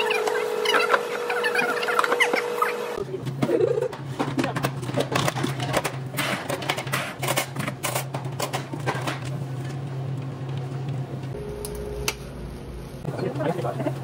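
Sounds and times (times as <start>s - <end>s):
steady low hum: 8.6s - 14.0s.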